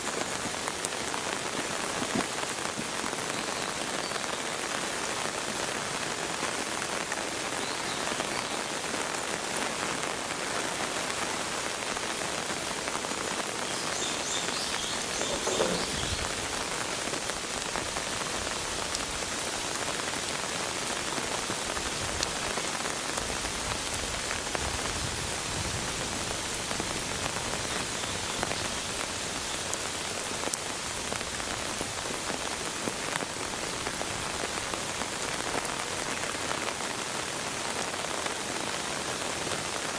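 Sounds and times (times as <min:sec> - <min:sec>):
rain on rock and concrete: 0:00.0 - 0:39.9.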